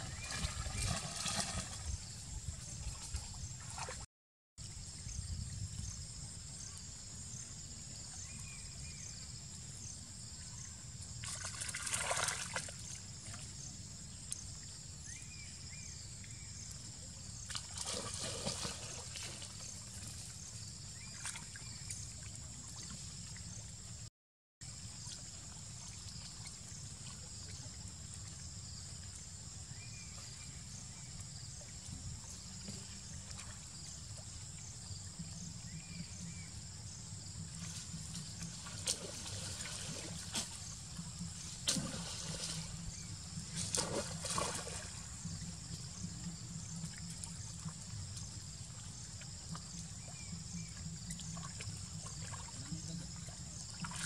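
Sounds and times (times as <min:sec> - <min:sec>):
monkeys splashing in muddy water: 0:00.0 - 0:02.0, 0:11.2 - 0:13.4, 0:17.5 - 0:20.3, 0:37.6 - 0:46.1, 0:50.9 - 0:54.0.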